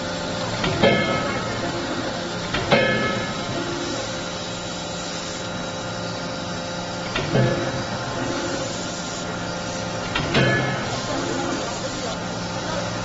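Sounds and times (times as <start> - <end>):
hydraulic system humming: 0.0 - 13.0.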